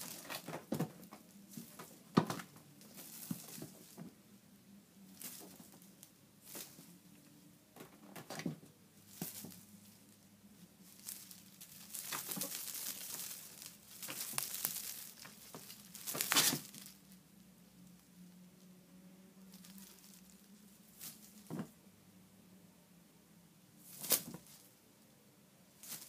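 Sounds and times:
cloth cover rustling and crinkling: 0:00.0 - 0:04.2, 0:05.0 - 0:07.2, 0:09.0 - 0:17.2, 0:19.4 - 0:21.8, 0:23.8 - 0:24.7.

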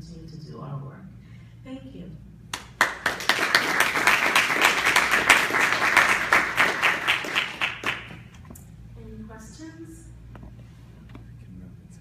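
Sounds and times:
audience applauding: 0:02.8 - 0:08.3.

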